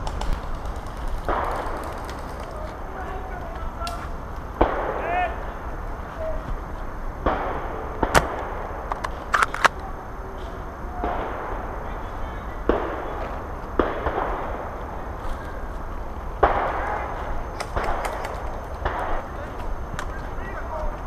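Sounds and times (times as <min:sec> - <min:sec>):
bursts of noise: 0:00.0 - 0:21.0
airsoft gunfire cracks: 0:04.6 - 0:05.4, 0:07.2 - 0:09.7, 0:16.4 - 0:19.4.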